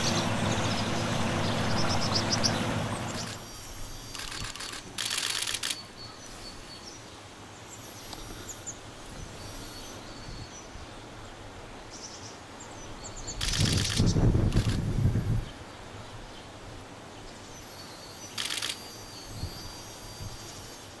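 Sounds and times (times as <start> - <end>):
faint steady hiss: 3.0 - 21.0
rapid camera shutter clicks: 3.1 - 3.4, 4.1 - 5.9, 13.4 - 14.8, 18.3 - 19.0.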